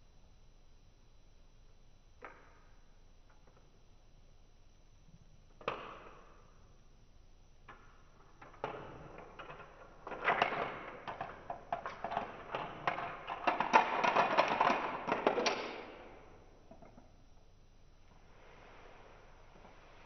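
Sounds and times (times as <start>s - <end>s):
marbles rolling on plastic rails: 8.4s - 17.1s.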